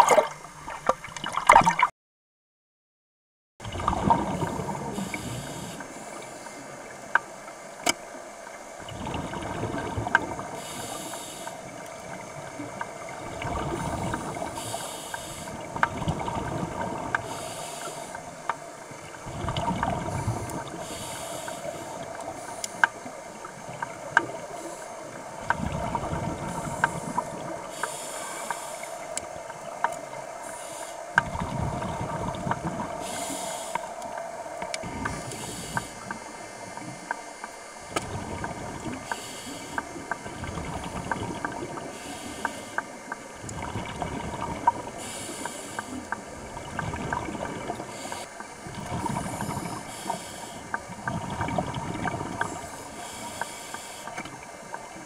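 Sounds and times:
hissing regulator inhale: 4.4s - 7.0s, 10.4s - 12.6s, 13.6s - 16.3s, 17.0s - 19.1s, 19.7s - 23.1s, 24.1s - 36.4s, 38.8s - 40.1s, 40.9s - 43.1s, 43.9s - 46.3s, 47.2s - 54.4s
bubbling exhale: 13.1s - 18.4s, 19.1s - 22.8s, 24.4s - 36.2s, 43.4s - 54.2s.

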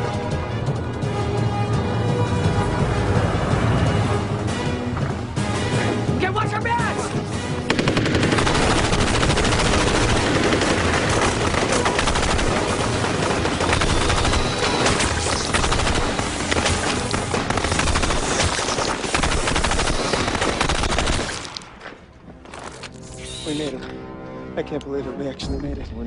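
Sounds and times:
automatic gunfire: 7.7s - 21.5s.

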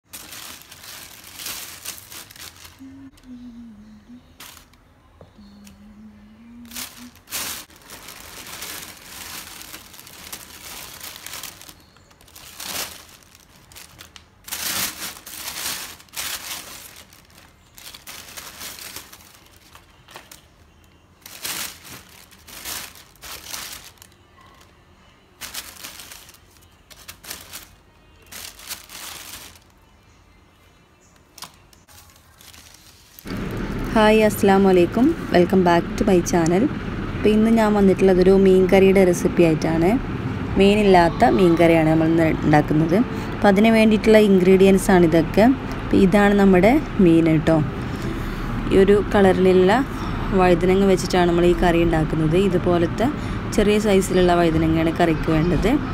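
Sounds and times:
plastic bag rustling: 0.0s - 3.4s, 4.4s - 4.8s, 6.6s - 24.8s, 25.4s - 29.9s, 31.4s - 35.2s.

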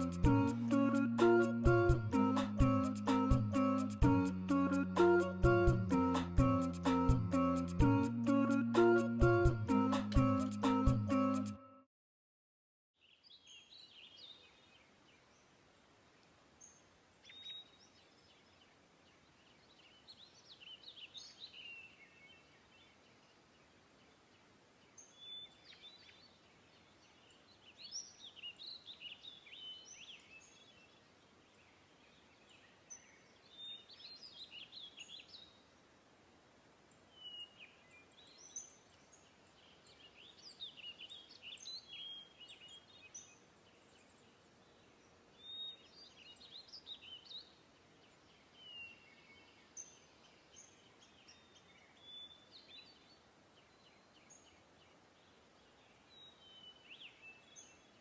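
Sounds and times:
birds chirping: 0.0s - 7.8s
low hiss: 14.4s - 58.0s.

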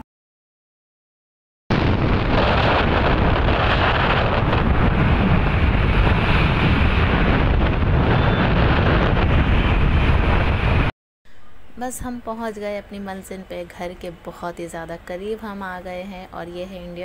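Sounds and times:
wind buffeting microphone: 1.7s - 10.9s.

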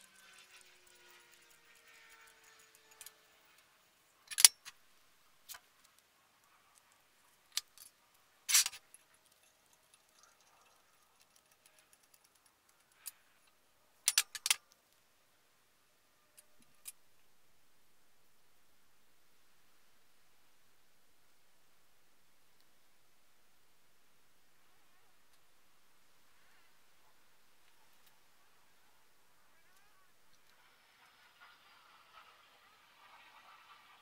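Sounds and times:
tape tearing: 8.5s - 8.8s.

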